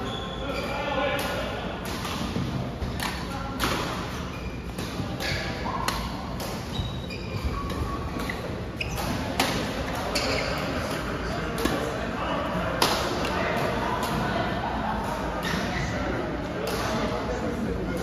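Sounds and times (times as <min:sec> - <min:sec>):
sneaker squeaks on floor: 0:00.0 - 0:00.9, 0:04.0 - 0:11.0, 0:15.4 - 0:16.0.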